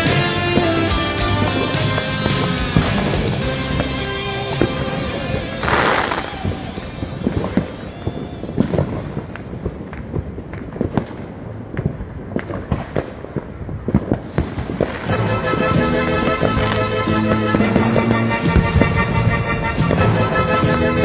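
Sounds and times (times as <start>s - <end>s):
background music: 0.0s - 9.8s, 14.9s - 21.0s
fireworks bangs and crackling: 0.0s - 21.0s.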